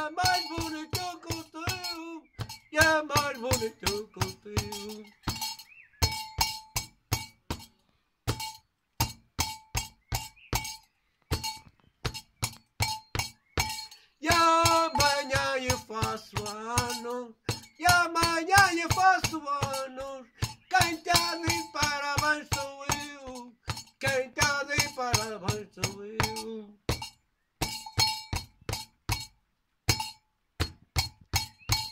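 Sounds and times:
man singing folk song: 0.0s - 5.4s, 14.0s - 26.9s
metal percussion clinking beat: 0.0s - 31.9s.

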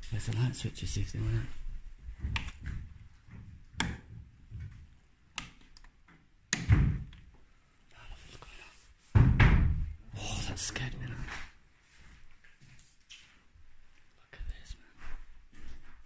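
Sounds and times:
light switches clicking: 5.3s - 5.9s.

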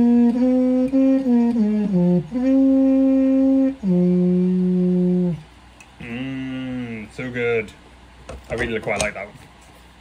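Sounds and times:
trumpet playing slow phrase: 0.0s - 7.0s.

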